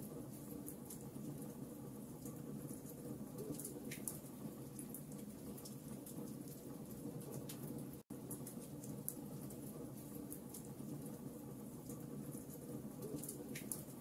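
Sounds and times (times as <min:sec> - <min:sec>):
wood fire burning: 0:00.0 - 0:14.0.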